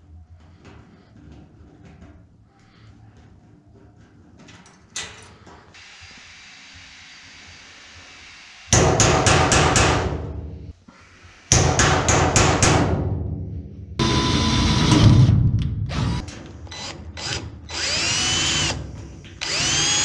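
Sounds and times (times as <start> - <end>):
cordless drill driving screw: 15.9 - 20.0.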